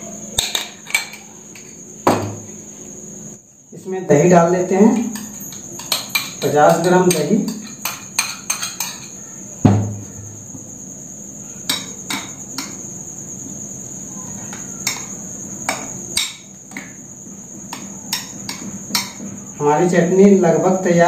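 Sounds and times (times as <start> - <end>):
steady high-pitched whine: 0.0 - 21.0
dull knock: 2.1 - 2.4, 9.6 - 10.1.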